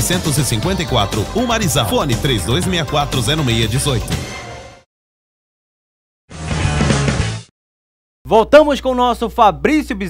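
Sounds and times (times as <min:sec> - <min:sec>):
tv jingle: 0:00.0 - 0:04.9.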